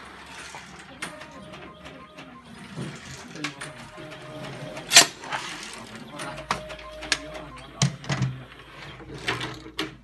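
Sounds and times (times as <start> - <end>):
brief steady tone: 6.1 - 8.9.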